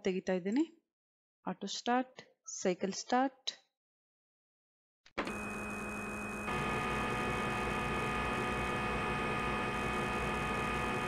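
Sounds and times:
machine hum with held tones: 5.2s - 11.0s.

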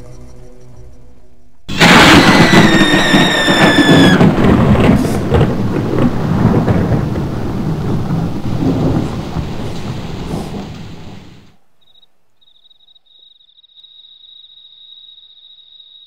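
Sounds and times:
high falling tone: 0.0s - 4.9s
thunderclap rumbling: 1.7s - 11.6s.

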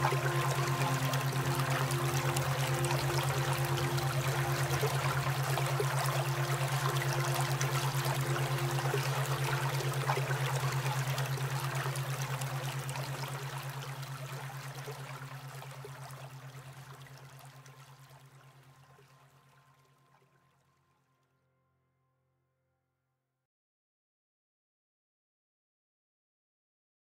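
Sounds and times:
pulsing low hum: 0.0s - 19.2s
running water: 0.0s - 19.7s.

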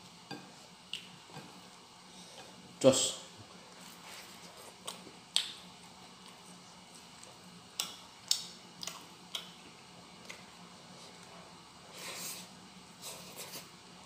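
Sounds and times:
eating clicks and smacks: 4.8s - 5.6s, 7.2s - 9.6s.

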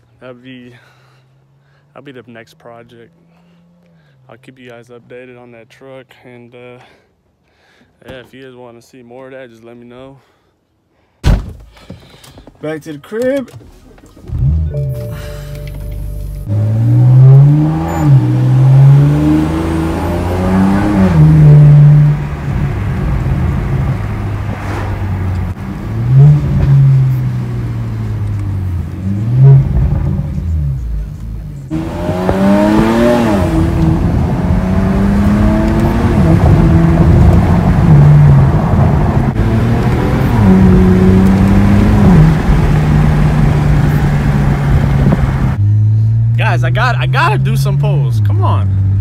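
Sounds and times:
road noise: 0.0s - 8.0s, 11.9s - 49.0s
car engine accelerating through gears: 14.3s - 46.4s.

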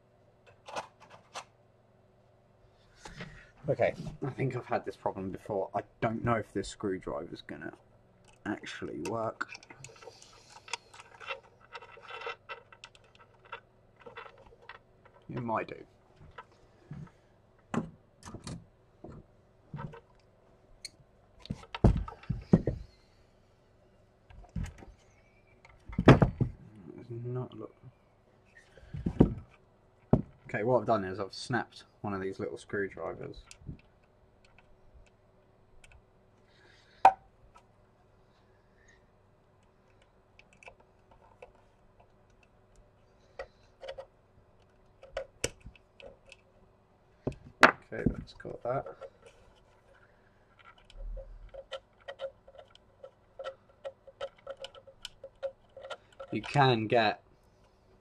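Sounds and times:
faint steady hum: 0.0s - 58.0s
hand tools clicking and tapping: 50.6s - 56.7s.

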